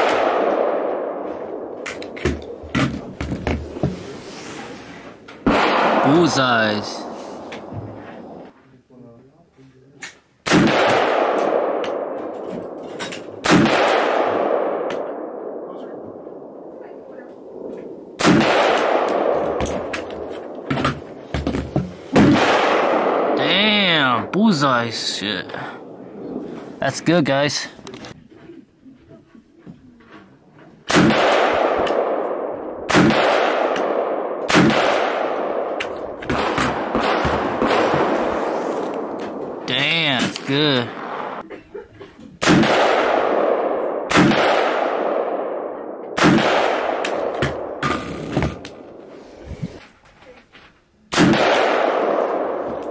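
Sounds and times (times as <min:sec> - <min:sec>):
fainter distant gunshots: 0:00.0 - 0:03.8, 0:05.4 - 0:08.4, 0:10.4 - 0:27.7, 0:30.9 - 0:41.5, 0:42.4 - 0:49.0, 0:51.1 - 0:52.9
rifle gunshots echoing: 0:00.0 - 0:03.8, 0:05.4 - 0:08.5, 0:10.4 - 0:26.6, 0:30.9 - 0:41.4, 0:42.4 - 0:49.1, 0:51.1 - 0:52.9.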